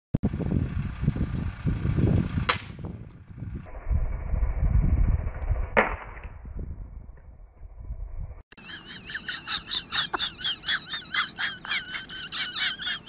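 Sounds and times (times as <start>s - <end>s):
low rumbling: 0.2s - 8.4s.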